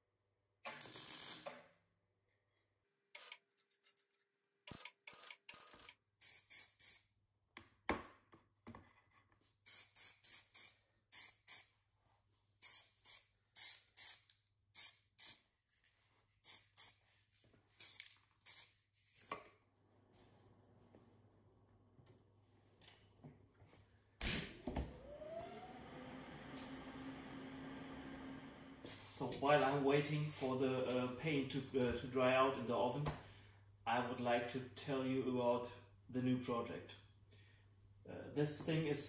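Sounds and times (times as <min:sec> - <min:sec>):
spray-paint can hissing bursts: 0:09.7 - 0:11.7, 0:12.6 - 0:14.2, 0:17.8 - 0:18.7.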